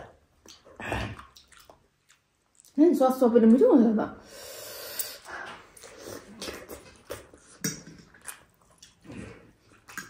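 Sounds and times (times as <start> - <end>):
chewing and mouth smacking: 0.0 - 2.8, 5.1 - 10.0.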